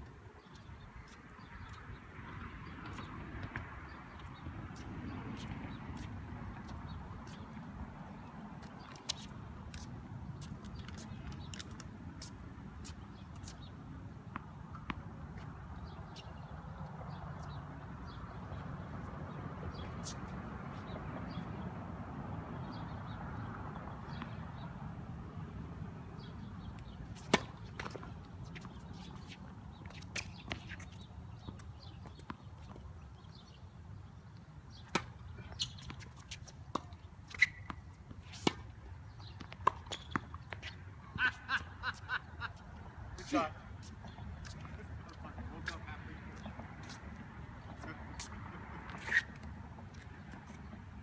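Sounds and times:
tennis ball hits and bounces: 26.8s - 32.9s, 34.7s - 40.8s, 46.4s - 47.0s.

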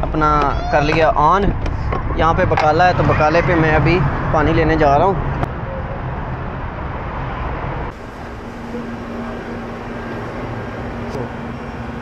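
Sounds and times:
street traffic rumble: 0.0s - 12.0s
cooling equipment hum: 7.9s - 12.0s.

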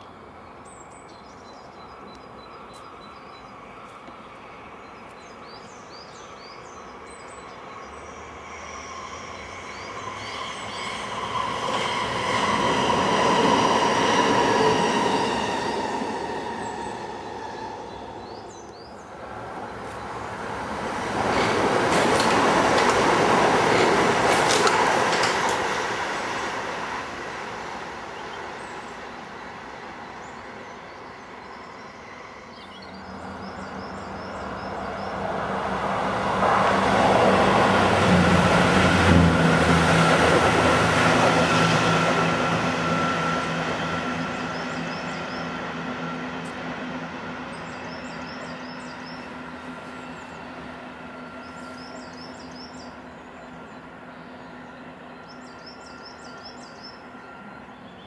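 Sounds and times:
train passing: 0.0s - 58.0s
birds chirping: 43.6s - 58.0s.

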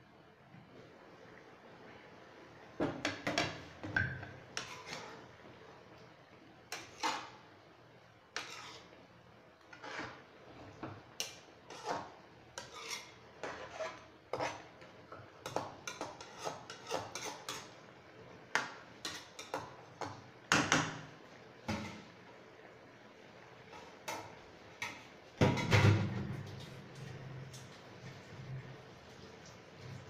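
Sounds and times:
metal spoon scraping frying pan: 4.4s - 5.3s, 6.7s - 7.4s, 8.3s - 9.0s, 9.6s - 14.8s, 15.4s - 17.8s, 19.0s - 20.2s.

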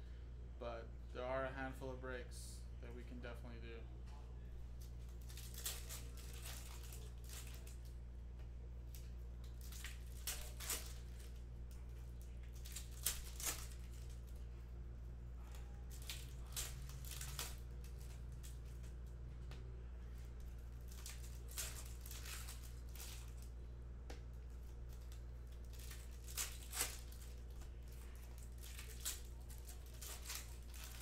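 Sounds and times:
cards snapping and rustling: 4.8s - 7.9s, 8.9s - 14.4s, 15.4s - 19.0s, 20.4s - 23.5s, 24.2s - 31.0s
foil wrappers crinkling: 4.8s - 8.0s, 8.9s - 14.5s, 15.4s - 19.0s, 20.4s - 23.6s, 24.4s - 31.0s.

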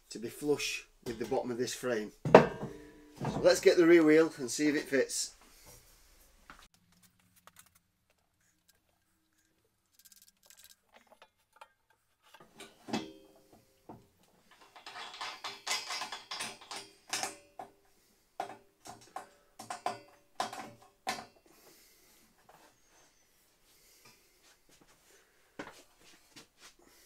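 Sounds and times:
metallic clicks and knocks: 14.4s - 17.8s, 18.4s - 21.4s.

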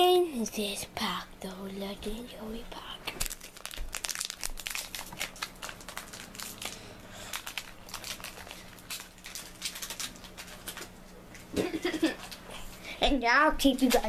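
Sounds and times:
foil wrapper crinkling: 2.8s - 11.0s.

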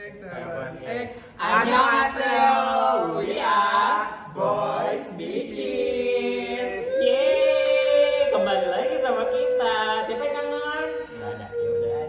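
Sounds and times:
young men singing in chorus: 0.6s - 7.2s.

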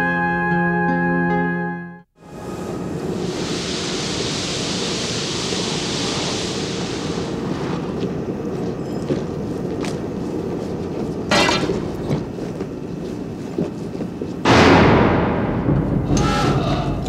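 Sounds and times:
steam hissing: 2.2s - 8.6s
low rumble: 14.5s - 17.0s.

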